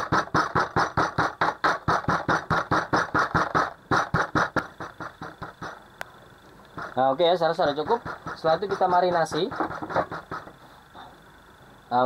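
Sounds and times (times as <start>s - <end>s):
chopping knife striking meat: 0.0s - 5.8s, 7.7s - 10.6s.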